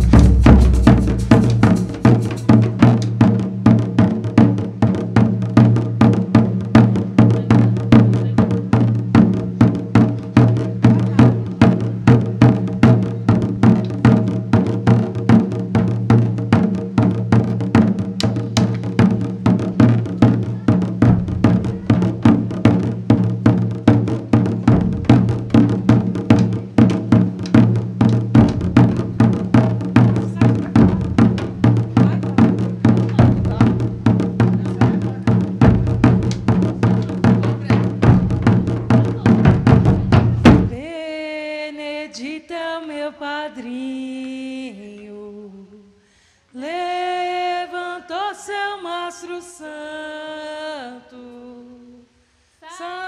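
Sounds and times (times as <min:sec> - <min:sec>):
bass drum beat: 0:00.0 - 0:03.7, 0:05.6 - 0:40.8
percussion: 0:00.0 - 0:40.9
person singing unaccompanied: 0:46.6 - 0:53.0.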